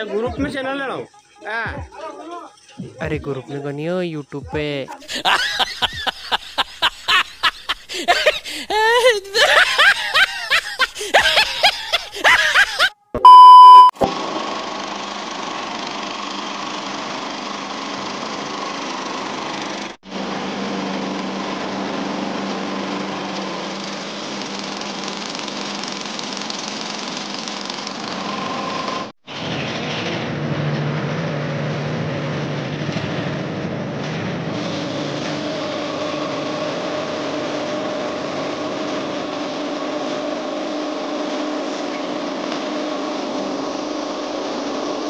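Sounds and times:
concrete mixer engine humming: 4.4s - 12.9s, 14.1s - 45.0s
loud beep tone: 13.2s - 14.1s.

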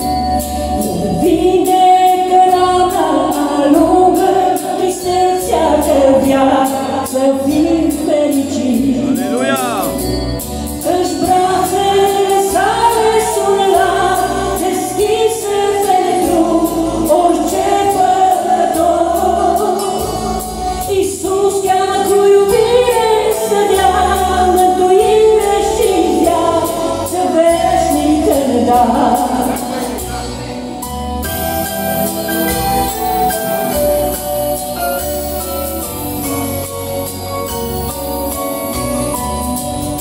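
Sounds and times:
woman singing into a microphone: 0.0s - 9.4s, 10.7s - 30.1s
instrumental accompaniment with bass: 0.0s - 40.0s.

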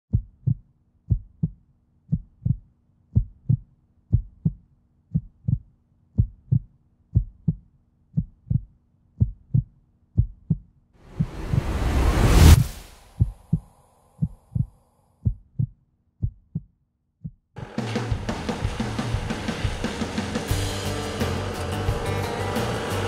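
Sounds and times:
heartbeat double thump: 0.1s - 2.6s, 3.2s - 7.6s, 8.2s - 17.4s.

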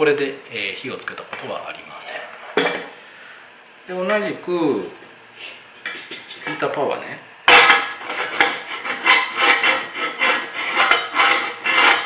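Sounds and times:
pan scraping on metal supports: 7.5s - 12.0s.

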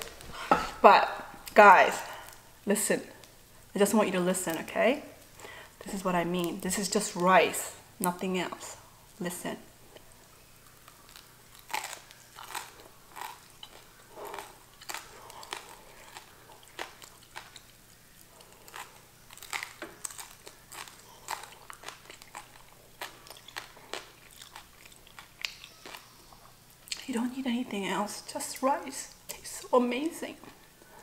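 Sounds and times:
crunchy bites and chewing: 10.5s - 26.9s.

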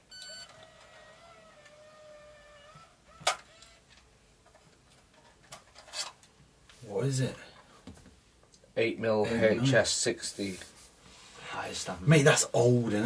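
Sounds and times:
faint tape motor whine: 0.0s - 4.1s
short beep: 0.1s - 0.5s.

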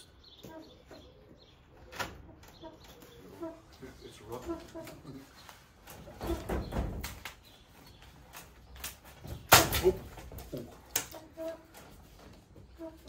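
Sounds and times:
sharp knocks and clatter: 4.7s - 12.6s.

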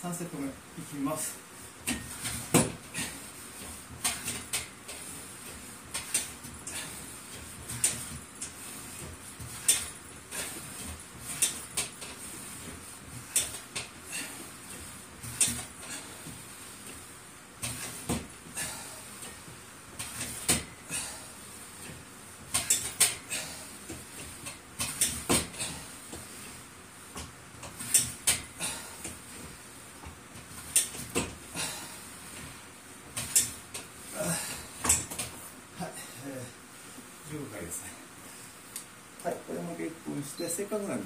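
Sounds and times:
exercise machine metallic clanks: 3.9s - 5.2s, 7.7s - 12.2s, 15.2s - 16.1s, 21.8s - 23.6s, 24.3s - 25.8s, 27.6s - 29.2s, 33.2s - 33.9s, 34.8s - 35.3s.

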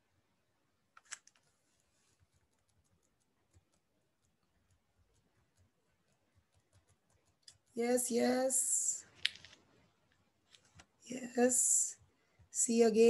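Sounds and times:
computer mouse clicks: 2.3s - 7.7s.

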